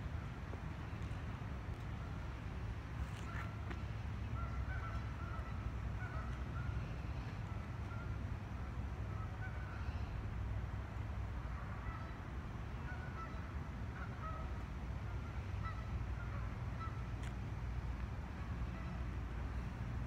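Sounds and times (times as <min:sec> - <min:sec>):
geese honking: 0:03.0 - 0:10.2, 0:11.5 - 0:17.3, 0:18.4 - 0:19.7.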